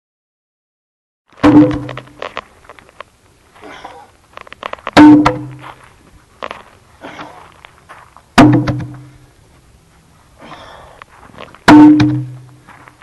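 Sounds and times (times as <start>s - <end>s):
heavy wooden log thunks: 1.4s - 2.2s, 4.9s - 5.6s, 8.4s - 9.1s, 11.7s - 12.5s.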